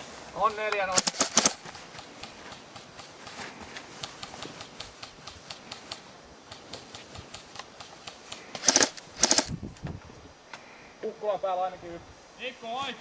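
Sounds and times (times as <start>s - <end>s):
airsoft gun rapid bursts: 0.8s - 3.2s, 7.3s - 9.5s.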